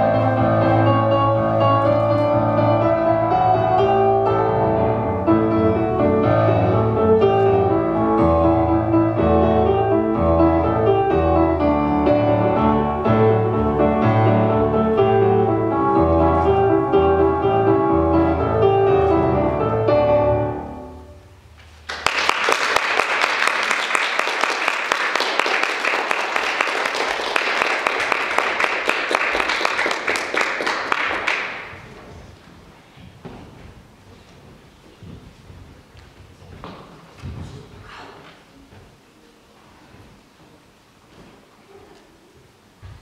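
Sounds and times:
piano music: 0.0s - 21.6s
audience applauding: 21.8s - 32.0s.

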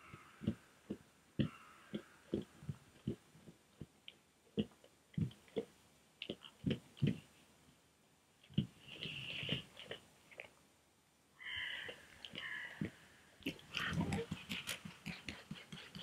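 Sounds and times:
bear chewing food: 0.0s - 3.9s, 11.8s - 16.0s.

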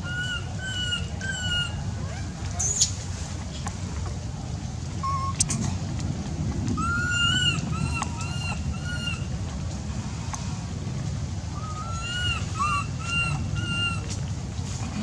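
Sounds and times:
infant monkey whining coo calls: 0.0s - 2.9s, 5.0s - 5.4s, 6.8s - 9.2s, 11.6s - 14.1s
low background noise: 0.0s - 15.0s.

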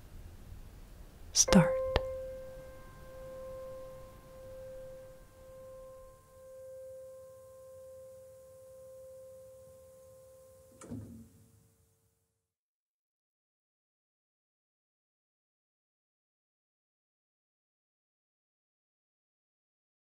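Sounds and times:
faint ringing music tone: 1.4s - 11.0s.

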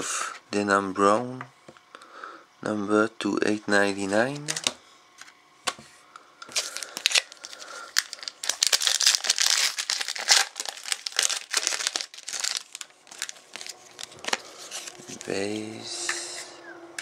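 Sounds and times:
foil wrapper tearing and crinkling: 4.3s - 4.8s, 6.4s - 15.3s.

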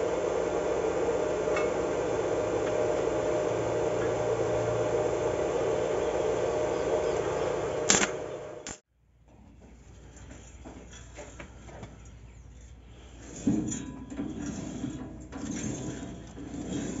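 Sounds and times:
welding machine hum and hiss: 0.0s - 8.8s
sharp click: 7.9s - 8.8s.

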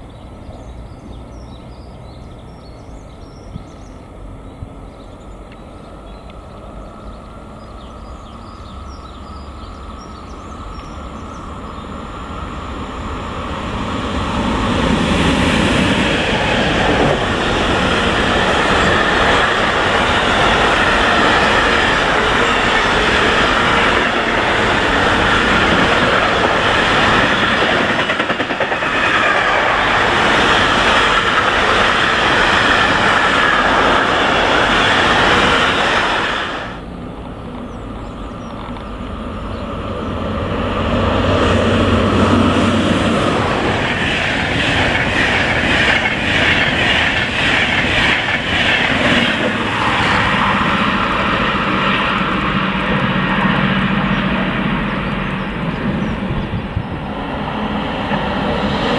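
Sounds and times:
train wheels clattering over rail joints: 16.8s - 35.6s, 42.4s - 52.4s.

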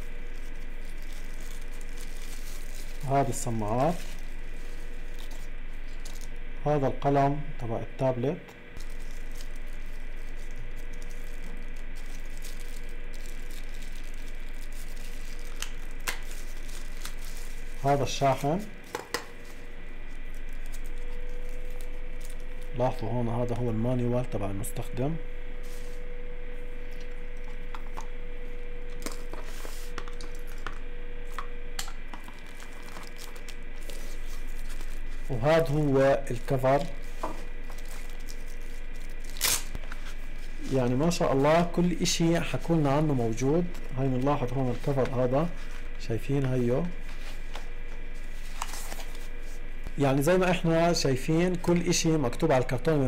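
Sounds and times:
plastic and paper crinkling: 0.0s - 6.4s, 8.8s - 23.1s, 28.9s - 45.9s, 46.8s - 50.5s
low electrical hum: 0.0s - 53.0s.

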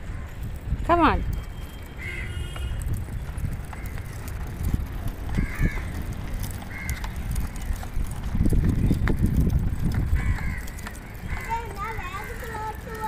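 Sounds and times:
crows cawing: 2.0s - 2.6s, 3.7s - 4.3s, 5.3s - 7.7s, 10.1s - 12.6s.

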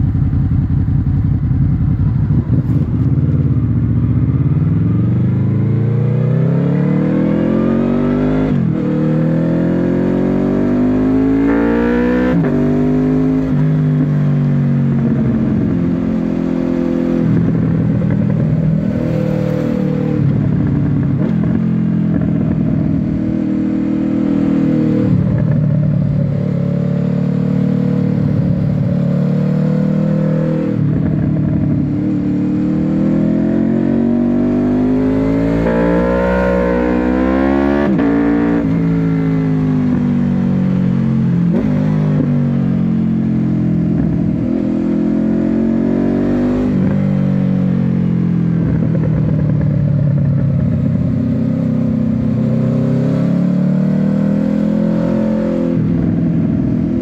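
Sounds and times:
motorcycle engine accelerating: 0.0s - 57.0s.

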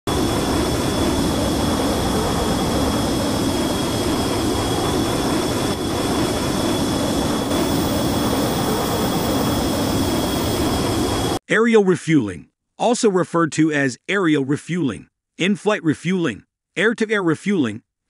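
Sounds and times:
jet engine rumble and whine: 0.1s - 11.4s.

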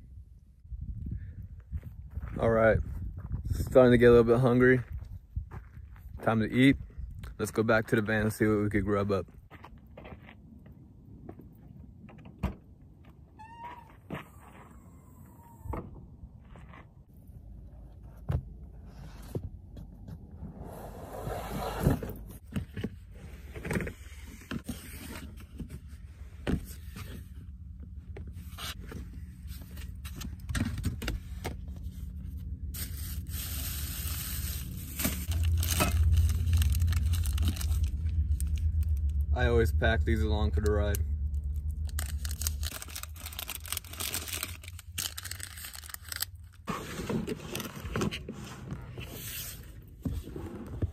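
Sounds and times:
low steady rumble: 14.3s - 50.9s
plastic bags rustling: 32.8s - 39.0s, 41.6s - 46.8s.

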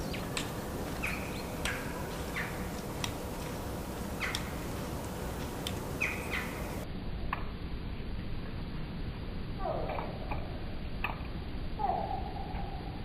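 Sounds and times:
songbirds chirping: 0.0s - 6.9s
steady background hiss: 0.0s - 13.0s
sharp clicks: 4.2s - 4.5s, 5.5s - 6.5s.

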